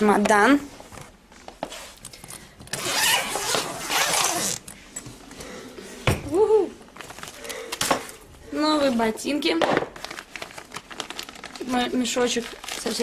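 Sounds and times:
suitcase zipper being pulled open: 2.7 - 4.6.

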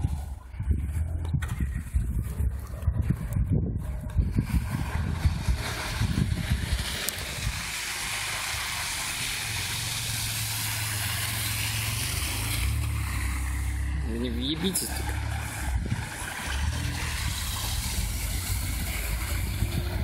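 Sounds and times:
car engine drone: 0.0 - 20.0
low buffeting rumbles: 0.0 - 20.0
tyres hissing on snow: 4.4 - 20.0.

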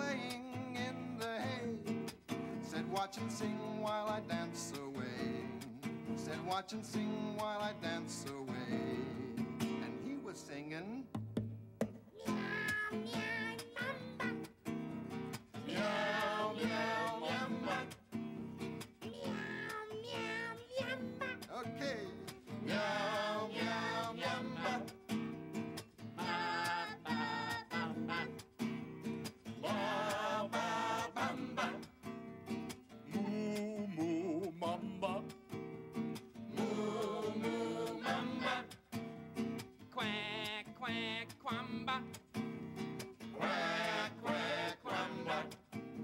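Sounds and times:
people singing children's song: 0.0 - 1.9, 2.6 - 10.2, 12.2 - 14.6, 15.3 - 25.4, 26.1 - 28.7, 29.5 - 32.1, 33.1 - 35.4, 36.5 - 39.0, 40.0 - 42.1, 43.2 - 45.8
strummed nylon-string guitar: 0.0 - 10.5, 11.1 - 46.0.

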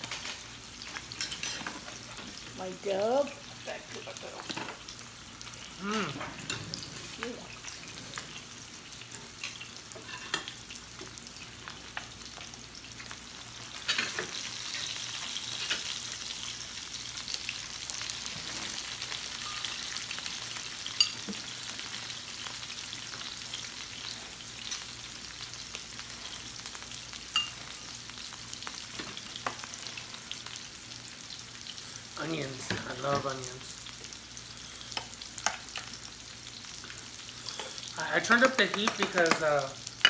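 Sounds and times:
meat sizzling on grill: 0.0 - 40.0.

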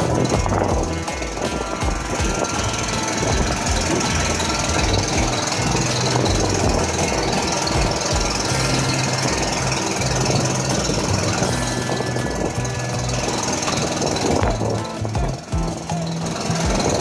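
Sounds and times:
boat motor running: 0.0 - 17.0.

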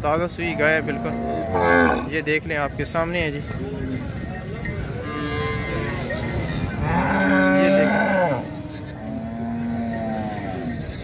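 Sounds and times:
cattle mooing: 0.4 - 2.1, 5.0 - 11.0.

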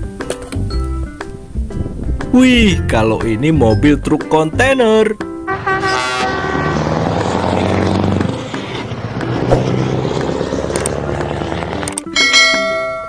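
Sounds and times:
truck driving past: 5.5 - 12.1.

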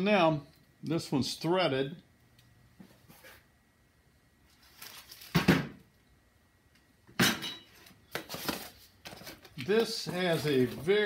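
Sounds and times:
packaging rustling: 4.5 - 5.4, 8.1 - 11.0.

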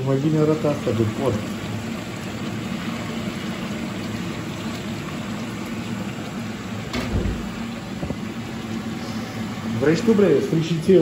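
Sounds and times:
meat deep-frying in oil: 0.0 - 11.0
knock: 6.9 - 7.6.

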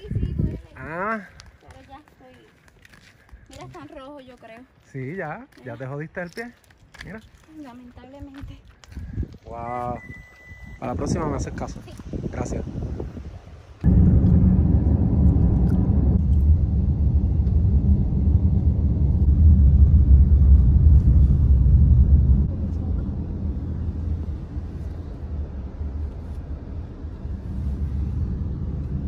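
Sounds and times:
car road and wind rumble: 8.1 - 29.0.

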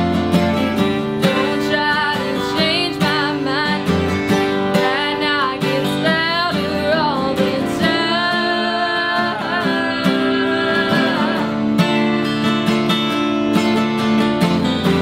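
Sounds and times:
acoustic guitars playing: 0.0 - 15.0
woman singing: 1.0 - 12.0
man singing harmony: 4.8 - 11.8.

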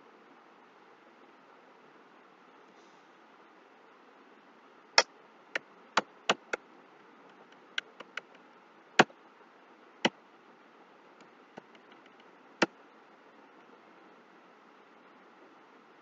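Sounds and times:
faint steady hiss: 0.0 - 16.0
keyboard and mouse clicking: 7.5 - 8.4.

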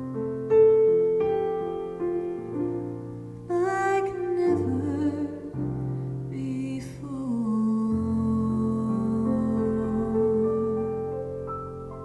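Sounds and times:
digital piano: 0.0 - 12.0
woman singing: 3.5 - 11.3.

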